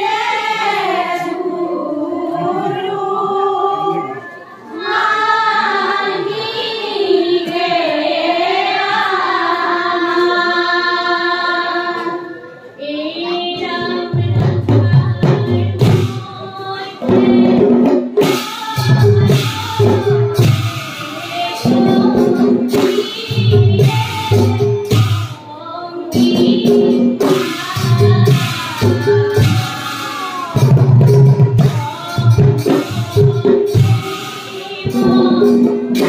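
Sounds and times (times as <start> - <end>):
women singing chant in unison: 0.0 - 36.0
drum strikes: 13.6 - 16.4, 17.0 - 25.4, 26.1 - 36.0.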